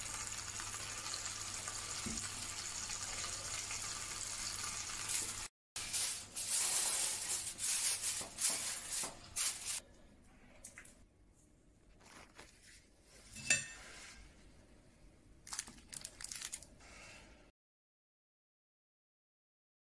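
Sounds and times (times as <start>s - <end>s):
aluminium foil crinkling: 5.0s - 9.8s, 15.4s - 16.8s.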